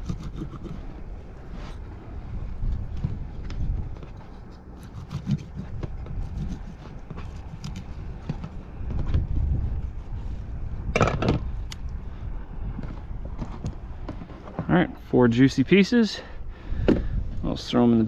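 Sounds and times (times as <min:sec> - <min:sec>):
low rumble: 0:00.0 - 0:15.1
knife scrape: 0:04.2 - 0:07.9.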